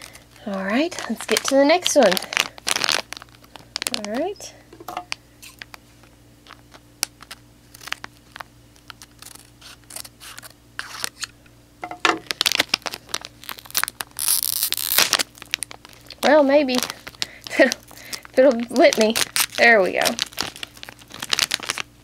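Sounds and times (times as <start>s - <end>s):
foil packet tearing: 0.0s - 4.4s, 6.4s - 11.4s, 12.2s - 22.0s
foil crinkling: 0.0s - 4.5s, 5.1s - 11.3s, 12.1s - 22.0s
scissors snipping foil: 7.1s - 11.3s.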